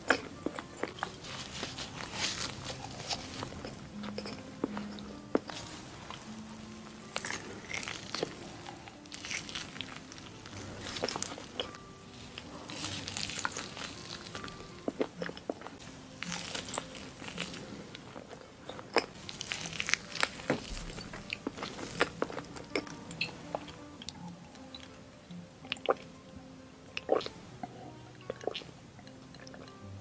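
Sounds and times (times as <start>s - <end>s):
chewing with clicky mouth sounds: 27.0s - 29.8s.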